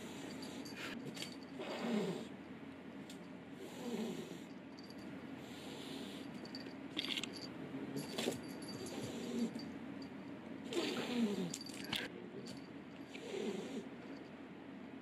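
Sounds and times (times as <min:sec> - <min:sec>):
cat low growl: 0:01.6 - 0:02.3, 0:03.6 - 0:04.5, 0:08.8 - 0:09.6, 0:10.7 - 0:11.7, 0:13.1 - 0:14.0.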